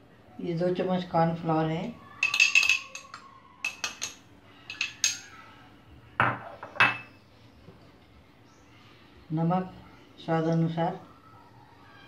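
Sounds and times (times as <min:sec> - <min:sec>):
metal spoon clinking on glass bowl: 0:02.2 - 0:05.3.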